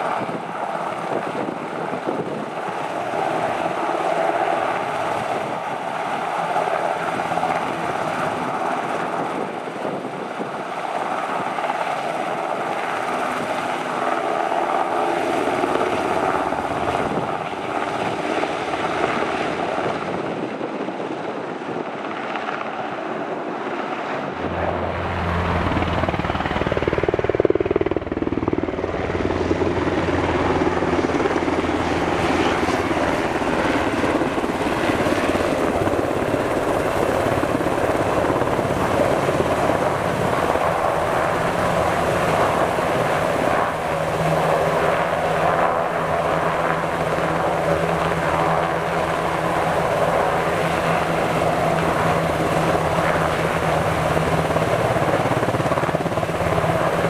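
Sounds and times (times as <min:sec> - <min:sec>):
helicopter rotors and turbines: 0:00.0 - 0:57.0
deep low drone: 0:24.4 - 0:27.6.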